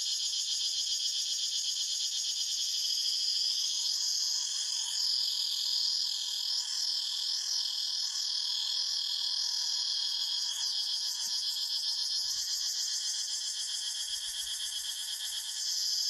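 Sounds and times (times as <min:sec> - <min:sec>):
cicadas buzzing: 0:09.9 - 0:16.0.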